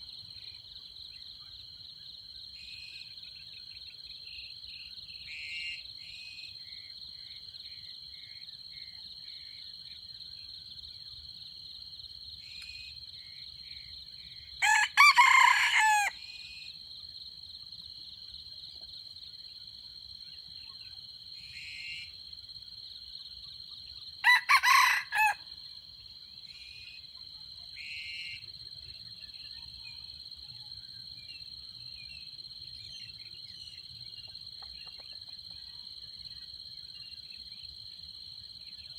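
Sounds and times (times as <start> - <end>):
rooster crowing: 14.6 - 16.2, 24.2 - 25.5.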